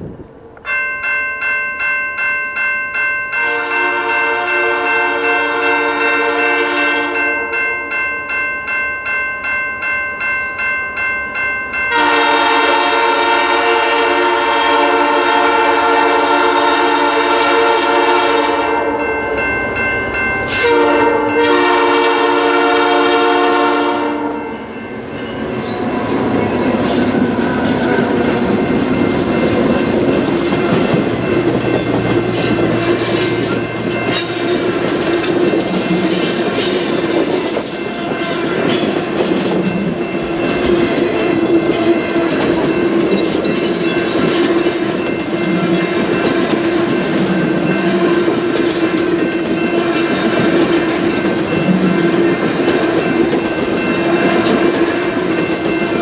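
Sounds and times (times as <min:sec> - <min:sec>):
train engine drone: 0:00.0 - 0:02.2, 0:03.2 - 0:56.0
locomotive air horn blasts: 0:03.4 - 0:07.3, 0:11.9 - 0:19.0, 0:20.5 - 0:24.4.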